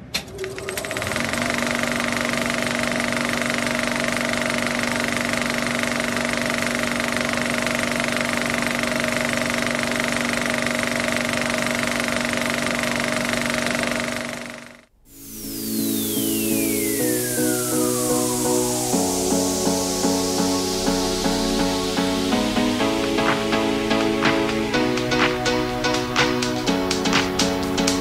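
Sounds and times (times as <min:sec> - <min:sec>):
film projector clattering: 0:00.4 - 0:14.8.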